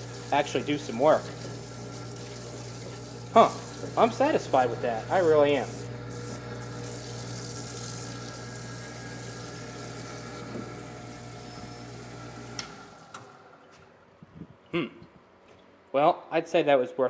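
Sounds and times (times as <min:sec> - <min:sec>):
fluid pouring and splashing: 0:00.0 - 0:04.2, 0:05.6 - 0:11.4
electric pump motor humming: 0:00.0 - 0:14.0.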